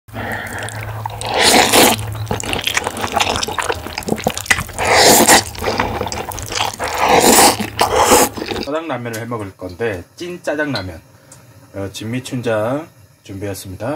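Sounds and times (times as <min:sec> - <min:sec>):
low steady hum: 0:00.1 - 0:08.7
noodle slurping: 0:00.1 - 0:08.7
wet chewing and mouth clicks: 0:00.1 - 0:08.7.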